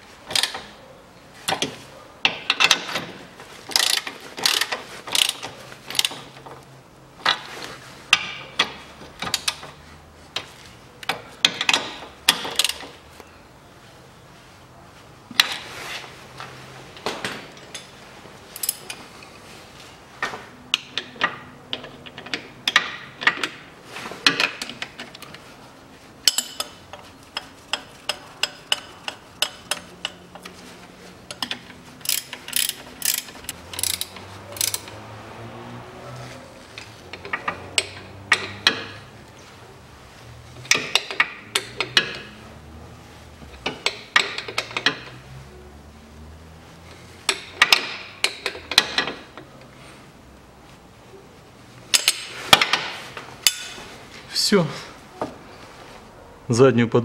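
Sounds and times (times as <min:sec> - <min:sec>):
steel wrenches clinking: 0:00.2 - 0:00.8, 0:01.4 - 0:06.4, 0:11.0 - 0:13.0, 0:17.4 - 0:19.1, 0:26.2 - 0:30.6, 0:31.2 - 0:35.0, 0:36.6 - 0:39.4, 0:40.6 - 0:42.4, 0:43.5 - 0:45.3, 0:47.2 - 0:49.5, 0:51.9 - 0:53.9
socket ratchet clicking: 0:32.0 - 0:35.0.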